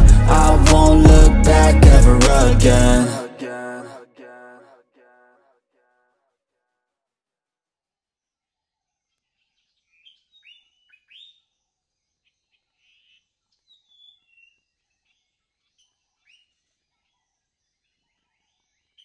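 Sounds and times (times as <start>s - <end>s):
songbirds singing: 9.6s - 11.5s.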